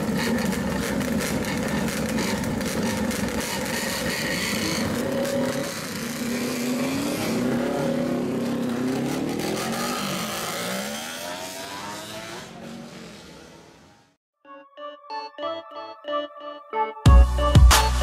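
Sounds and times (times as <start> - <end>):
motorcycles revving loudly: 0.0 - 14.2.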